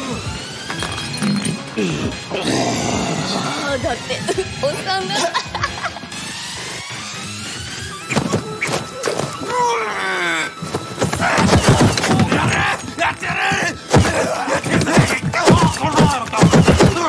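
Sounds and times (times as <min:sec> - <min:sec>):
action film music: 0:00.0 - 0:17.0
man groaning: 0:09.5 - 0:10.6.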